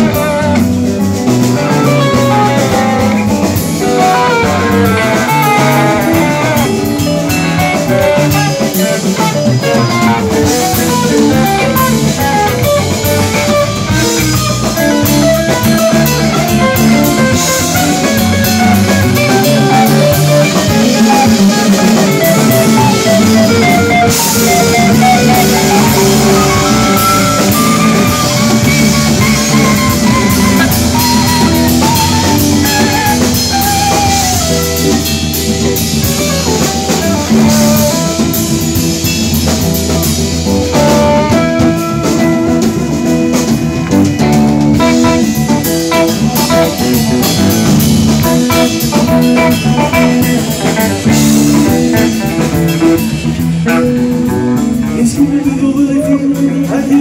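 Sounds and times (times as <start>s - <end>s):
bending lead guitar: 0.0s - 57.0s
instrumental rock band: 0.0s - 57.0s.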